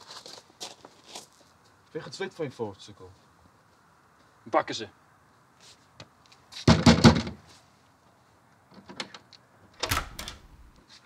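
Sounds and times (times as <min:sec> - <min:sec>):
door opening: 0:09.8 - 0:10.8.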